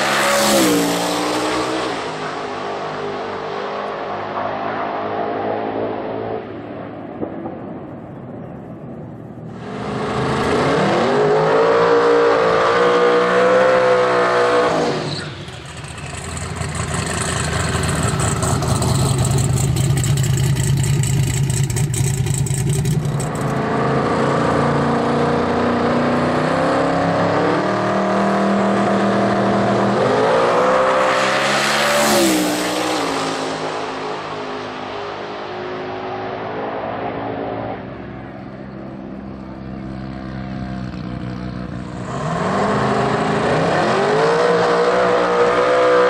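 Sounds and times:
drag car engine revving: 9.6s - 33.7s.

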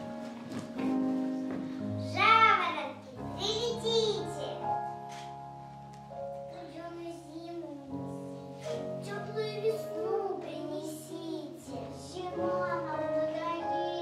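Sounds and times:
children singing together: 8.6s - 14.0s.

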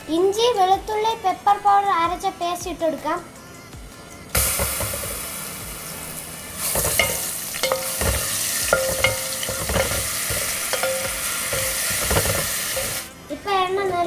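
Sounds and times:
spatula clinking and scraping pan: 4.4s - 5.4s, 6.6s - 13.1s
paste sizzling in hot oil: 4.4s - 13.1s.

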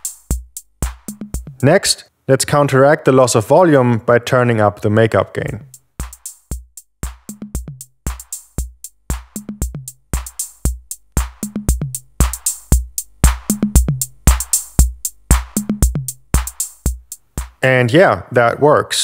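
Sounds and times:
drum machine kick and snare: 0.0s - 1.8s, 5.6s - 17.7s.

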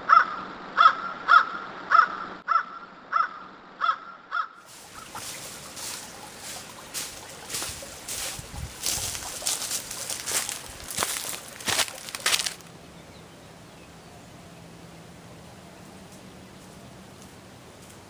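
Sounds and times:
animal call: 0.0s - 7.0s
footsteps in dry leaves: 4.7s - 12.7s.

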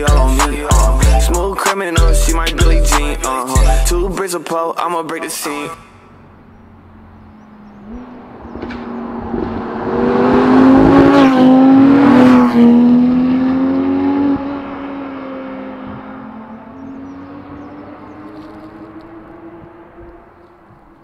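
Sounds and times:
car engine passing at speed: 6.1s - 21.0s.

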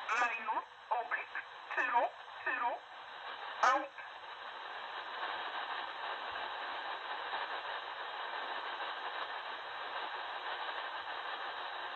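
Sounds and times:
shortwave radio static hiss: 0.0s - 11.9s.

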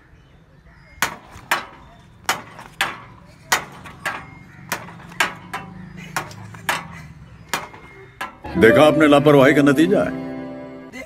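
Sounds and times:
metal seesaw clanking: 1.0s - 8.7s.

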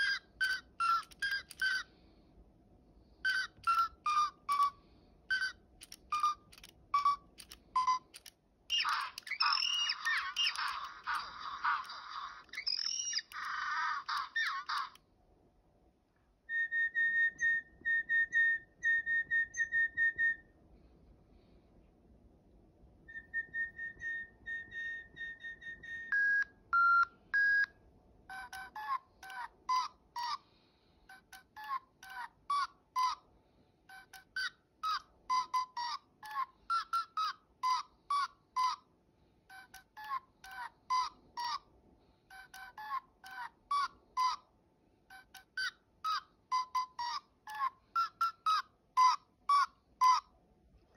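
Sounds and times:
quick high toy beeps: 0.0s - 1.9s, 3.3s - 11.2s, 45.1s - 50.3s.

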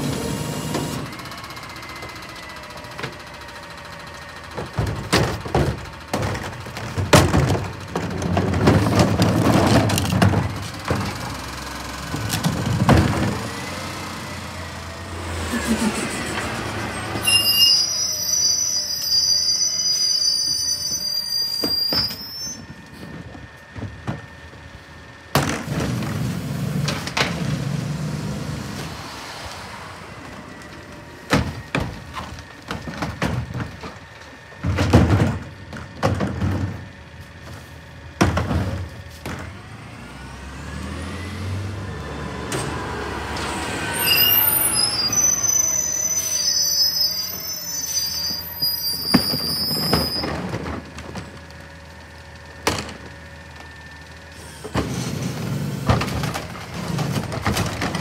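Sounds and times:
bangs of carts being emptied: 0.0s - 29.1s, 30.0s - 58.0s
garbage truck engine running: 0.0s - 58.0s
truck brakes squealing: 13.4s - 23.1s, 40.9s - 50.7s.

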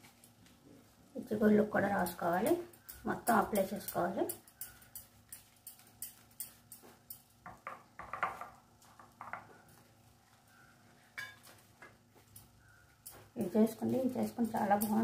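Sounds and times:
utensil clinking against dish: 2.7s - 8.6s, 12.3s - 15.0s.

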